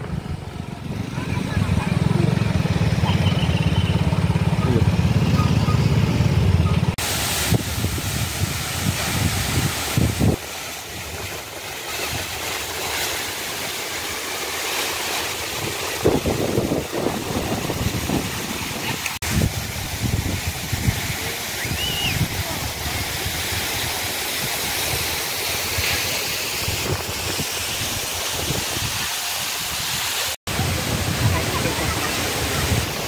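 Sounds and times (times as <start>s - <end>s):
motorcycle engine running: 0.0s - 7.0s
waterfall rushing: 0.0s - 33.0s.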